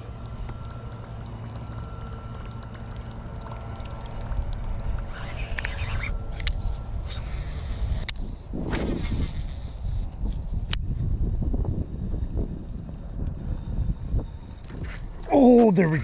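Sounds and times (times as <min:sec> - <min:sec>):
wind buffeting microphone: 0:03.9 - 0:16.0
sharp clicks: 0:14.6 - 0:16.0.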